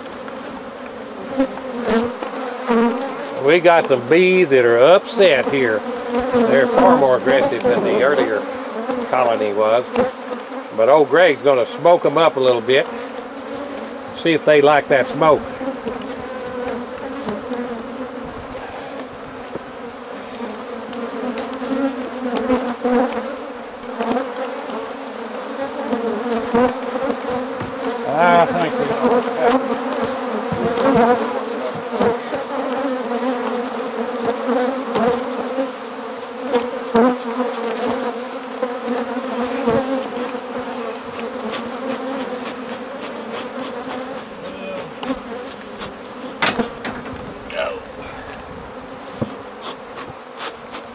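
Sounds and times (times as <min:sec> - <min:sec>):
honeybees buzzing: 0:00.0 - 0:50.9
knocks on wooden boards: 0:27.6 - 0:27.8, 0:30.5 - 0:30.8, 0:46.4 - 0:47.4.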